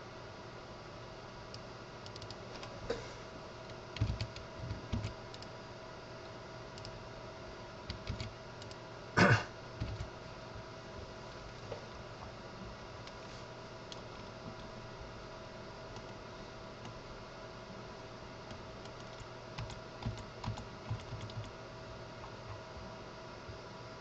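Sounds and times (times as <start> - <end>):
faint hum: 0.0 - 24.0
mouse and keyboard clicks: 2.0 - 2.7, 4.0 - 5.5, 7.9 - 8.8, 18.5 - 21.5
throat clearing: 9.2 - 9.6.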